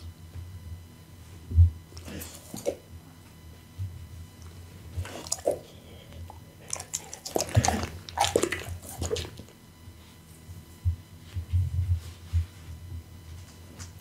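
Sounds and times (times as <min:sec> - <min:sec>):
dog licking and chewing: 0:05.0 - 0:09.5.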